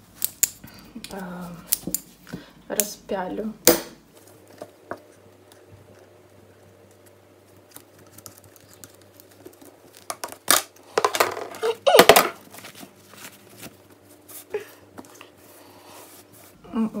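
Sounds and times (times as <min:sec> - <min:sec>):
fabric rustling and crinkling: 0:12.4 - 0:16.6.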